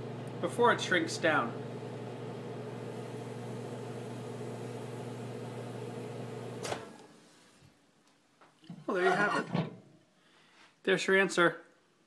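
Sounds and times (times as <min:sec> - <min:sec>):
microwave oven humming: 0:00.0 - 0:07.2.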